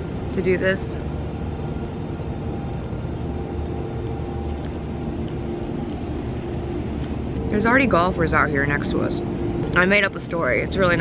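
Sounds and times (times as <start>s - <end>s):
faint even hum: 0.0s - 11.0s
low mechanical rumble: 0.0s - 11.0s.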